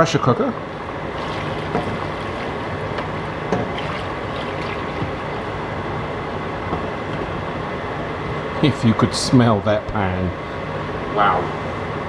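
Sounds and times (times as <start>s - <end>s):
broth pouring and splashing: 1.0s - 5.8s.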